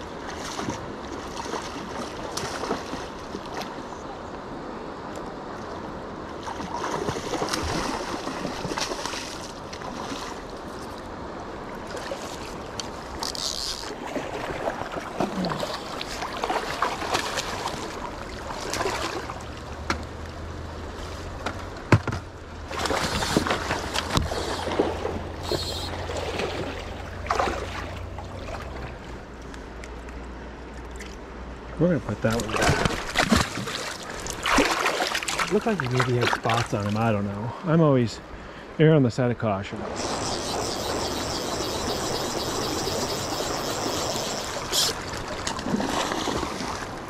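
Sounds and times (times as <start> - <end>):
fish thrashing in river water: 6.5 - 10.5, 11.8 - 19.6, 22.7 - 29.2, 32.4 - 36.6, 39.9 - 47.0.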